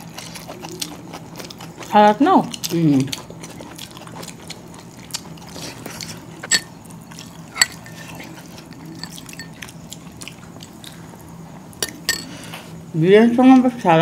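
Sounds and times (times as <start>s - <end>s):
soft chewing: 0.0s - 12.8s
spoon clinking against bowl: 6.4s - 6.7s, 7.6s - 9.7s, 11.8s - 12.3s.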